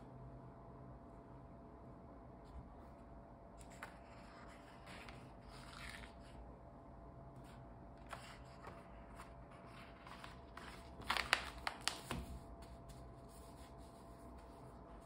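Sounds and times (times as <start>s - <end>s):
paper pages rustling: 3.6s - 6.4s, 7.4s - 15.0s
paper page flicking: 10.1s - 12.4s.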